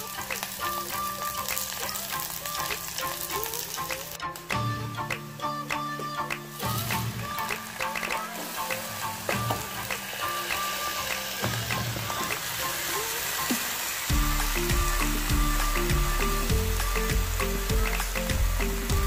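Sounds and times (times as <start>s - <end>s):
chicken sizzling in a pan: 0.0s - 4.2s, 6.5s - 19.0s
background music: 0.0s - 19.0s
heavy bass line: 14.1s - 19.0s.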